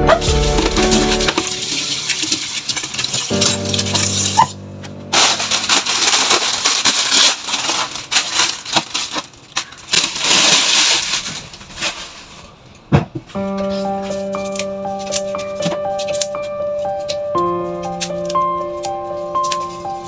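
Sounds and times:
wet leaves rustling: 0:00.2 - 0:12.5.

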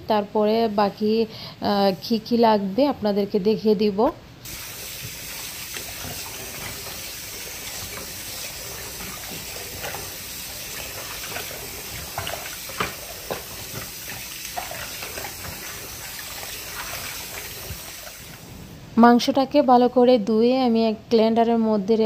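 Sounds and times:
water splashing and sloshing: 0:04.5 - 0:18.7
tap running into a pot: 0:11.0 - 0:15.6.

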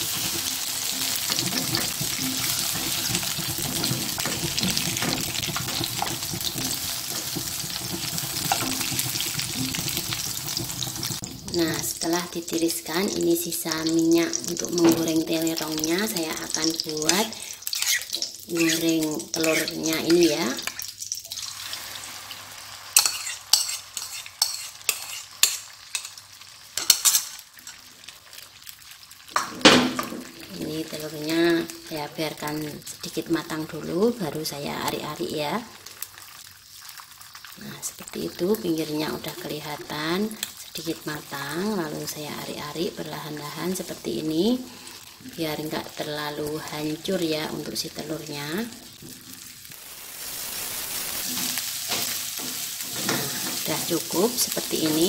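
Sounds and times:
utensils scraping a pan: 0:00.0 - 0:11.6, 0:17.1 - 0:20.8, 0:23.0 - 0:26.2, 0:26.8 - 0:27.8, 0:51.2 - 0:54.3
slices sizzling in hot oil: 0:00.0 - 0:55.0
sharp crackles: 0:49.7 - 0:51.7.

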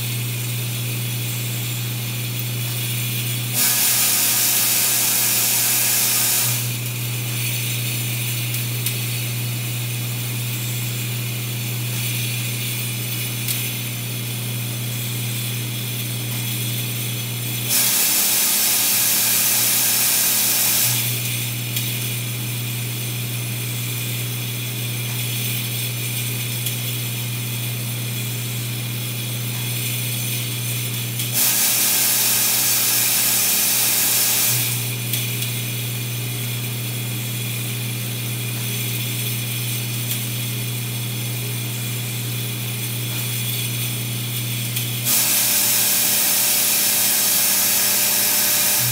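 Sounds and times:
feeder machine humming: 0:00.0 - 0:48.9.

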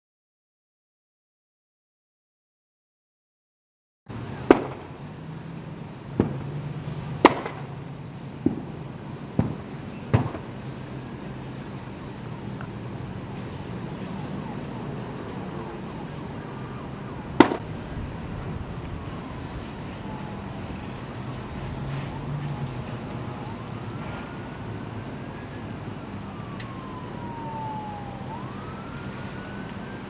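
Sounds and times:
fire bangs and pops: 0:04.4 - 0:05.0, 0:06.1 - 0:06.6, 0:07.2 - 0:07.7, 0:08.3 - 0:10.9, 0:17.3 - 0:24.5.

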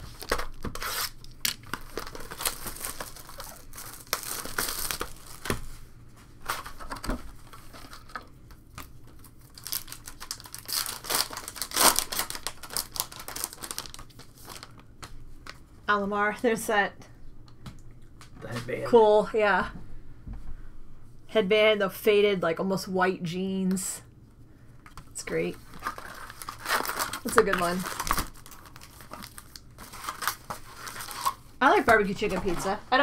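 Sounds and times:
foil wrapper crinkling and tearing: 0:00.0 - 0:05.6, 0:06.4 - 0:15.6, 0:25.6 - 0:31.5.

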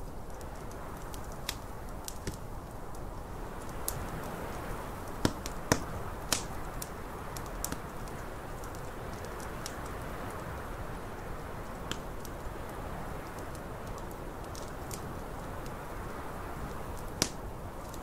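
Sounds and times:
low rush of wind: 0:00.0 - 0:18.0
wood fire crackling: 0:00.0 - 0:18.0
loud fire pops: 0:03.6 - 0:09.8, 0:17.0 - 0:18.0.

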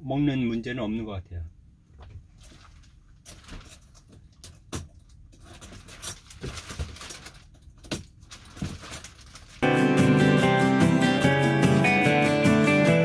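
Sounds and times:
shower curtain rustling: 0:02.3 - 0:04.1, 0:08.2 - 0:09.6
acoustic guitar music: 0:09.6 - 0:13.0.

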